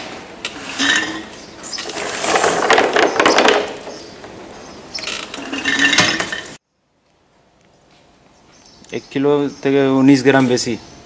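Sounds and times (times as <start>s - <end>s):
pellets rattling into glass jar: 1.8s - 3.5s.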